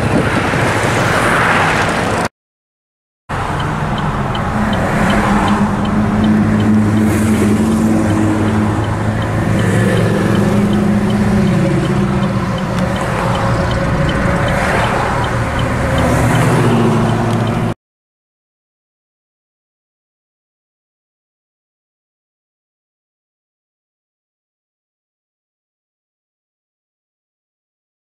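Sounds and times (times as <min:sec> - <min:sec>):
deep exhaust rumble of cars: 0:03.3 - 0:17.7.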